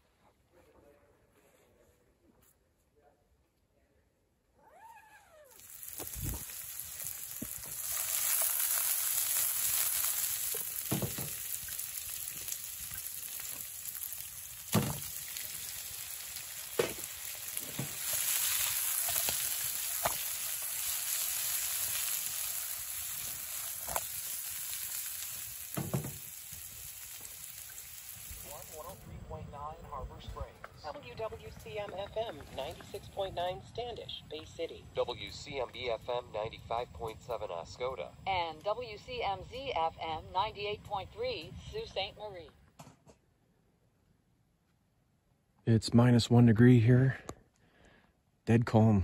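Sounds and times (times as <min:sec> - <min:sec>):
sharp pops and spits: 0:05.6 - 0:28.8
food sizzling in a skillet: 0:05.6 - 0:29.0.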